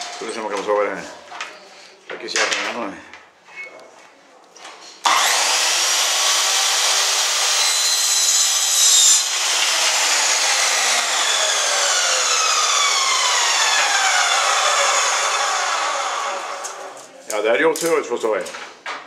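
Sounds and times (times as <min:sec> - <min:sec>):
miter saw cutting wood: 0:05.0 - 0:17.0.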